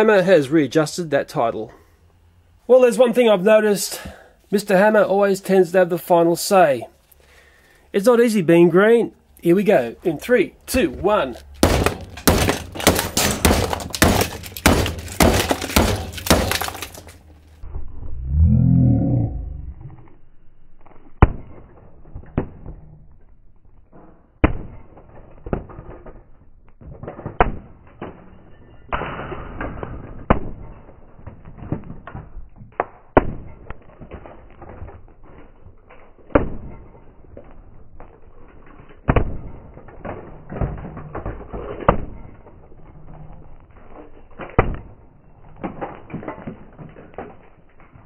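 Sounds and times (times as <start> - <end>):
hammer smashing plastic toy: 11.5 - 17.3.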